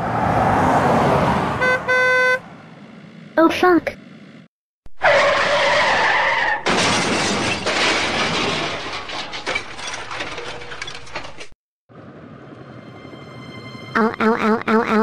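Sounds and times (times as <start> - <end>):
tyres screeching: 5.0 - 6.8
car crash: 5.0 - 11.6
glass shattering: 6.6 - 11.5
debris rattling: 6.6 - 11.6.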